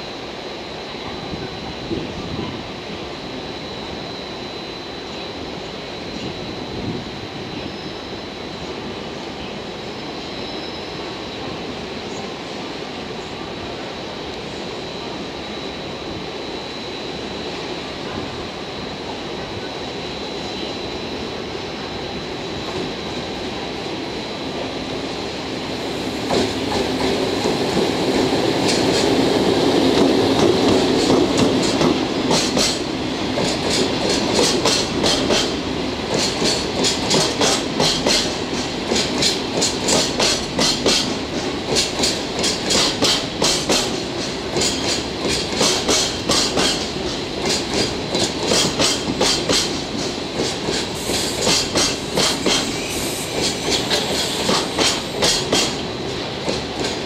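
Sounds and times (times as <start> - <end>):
electric locomotive passing: 0.0 - 57.0.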